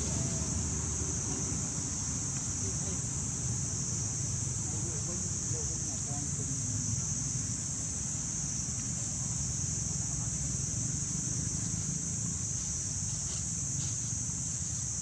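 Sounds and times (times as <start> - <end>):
insect chorus drone: 0.0 - 15.0
dry leaves rustling: 11.2 - 15.0.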